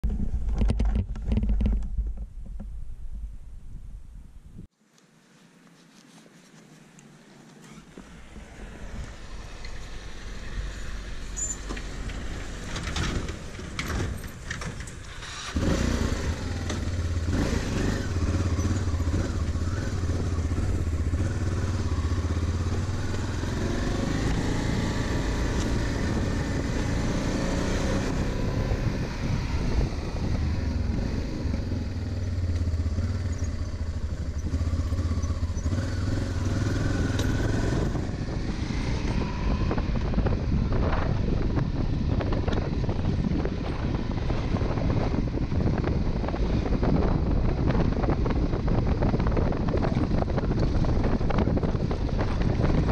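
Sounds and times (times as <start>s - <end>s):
motorcycle engine running: 15.0s - 52.9s.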